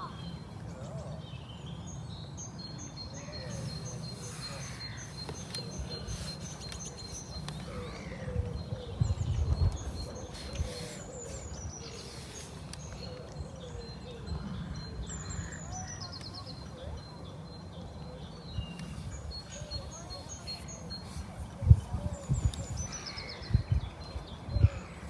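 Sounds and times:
wind rumble on microphone: 0:07.7 - 0:11.8, 0:21.1 - 0:25.0.

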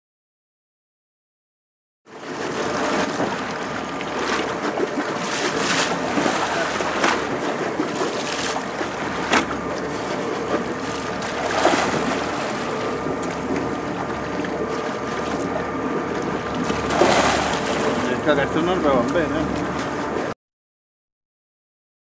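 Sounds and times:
faint boat engine hum: 0:02.1 - 0:20.4
water lapping beside boat: 0:02.1 - 0:20.4
fish splashing at surface: 0:11.3 - 0:12.8, 0:16.7 - 0:18.1.

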